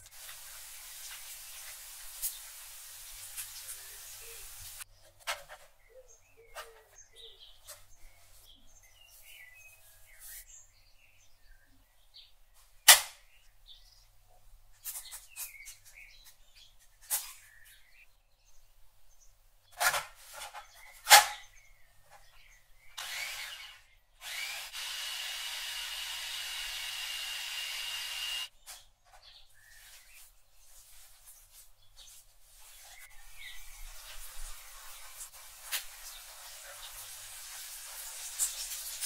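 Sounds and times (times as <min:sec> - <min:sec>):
food processor motor whirring: 0:23.0 - 0:28.5.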